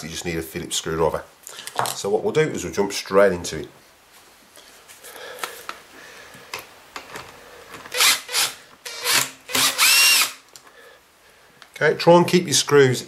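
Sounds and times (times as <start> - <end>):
cordless driver whirring: 7.9 - 10.4.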